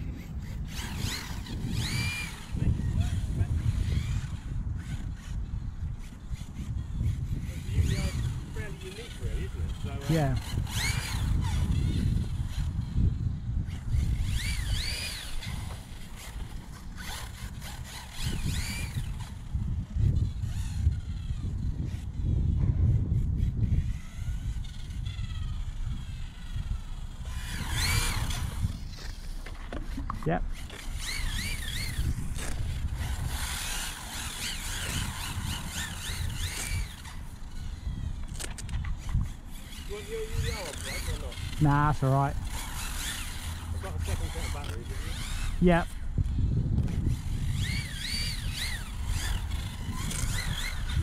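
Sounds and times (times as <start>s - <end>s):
electric motor whining: 0.0s - 51.0s
wind rumble on microphone: 0.0s - 51.0s.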